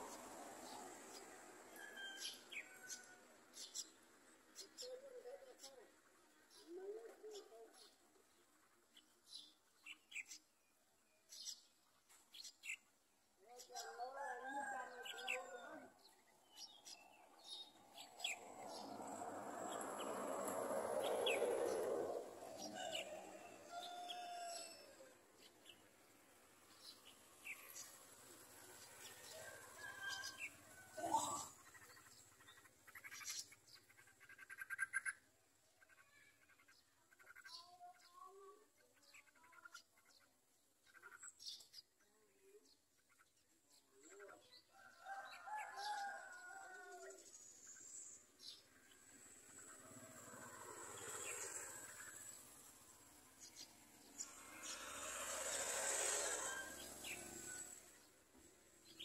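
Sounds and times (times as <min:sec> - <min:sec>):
broad rushing noise: 0:49.2 - 0:58.0.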